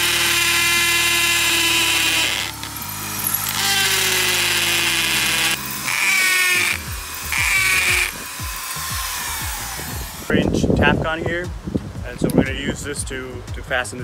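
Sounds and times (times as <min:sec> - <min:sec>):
hammer drill boring into concrete: 0:00.0 - 0:10.3.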